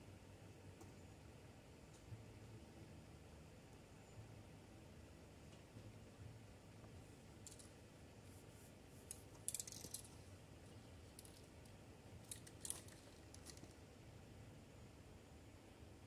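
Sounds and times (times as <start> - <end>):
spray can rattling: 9.1 - 10.2.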